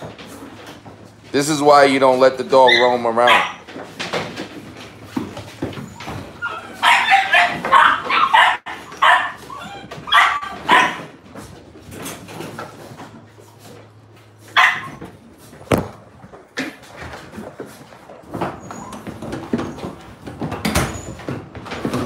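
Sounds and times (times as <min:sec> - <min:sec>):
dogs barking: 0:02.6 - 0:03.7, 0:05.9 - 0:11.2, 0:14.4 - 0:15.2.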